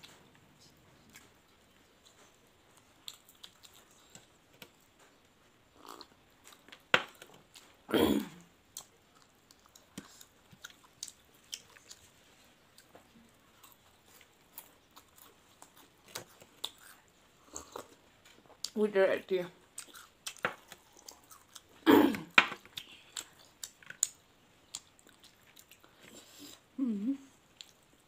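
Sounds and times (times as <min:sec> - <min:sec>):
chewing and biting fried food: 0:08.7 - 0:18.8, 0:19.7 - 0:21.8, 0:22.6 - 0:26.7.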